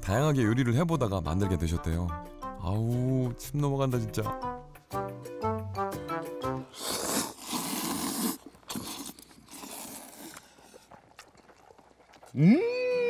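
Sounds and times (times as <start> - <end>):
slurping noodles: 6.5 - 12.4
man humming mmm: 12.4 - 13.0.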